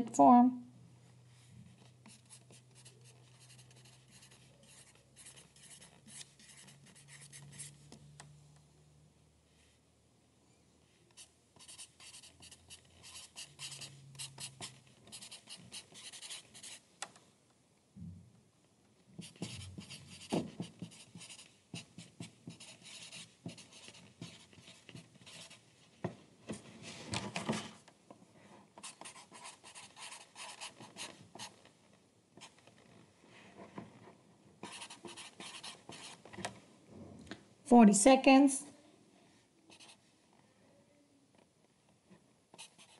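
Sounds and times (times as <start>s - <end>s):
pencil scratching on paper: 1.7s - 7.8s, 11.2s - 16.8s, 19.2s - 25.6s, 28.8s - 31.6s, 34.6s - 36.3s, 42.6s - 42.9s.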